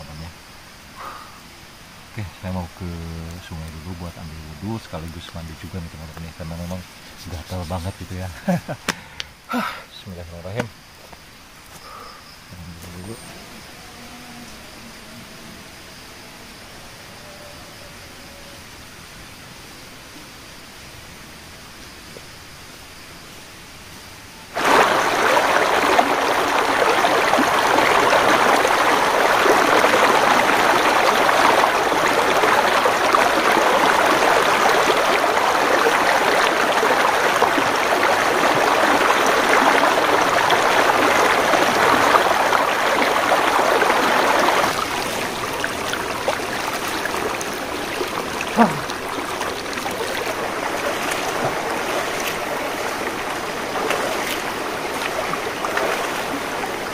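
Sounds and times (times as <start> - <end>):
river rushing over boulders: 24.5 - 56.9.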